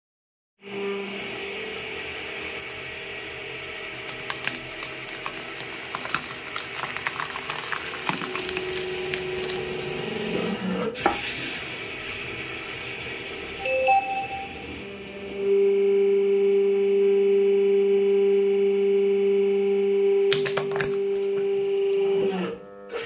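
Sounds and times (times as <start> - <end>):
hydraulic pump humming: 1.3 - 16.0
cauliflower crackling and snapping: 4.0 - 10.0.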